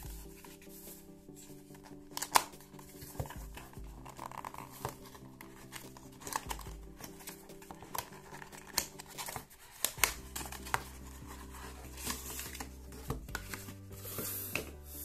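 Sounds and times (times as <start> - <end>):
packaging crinkling: 1.7 - 13.8.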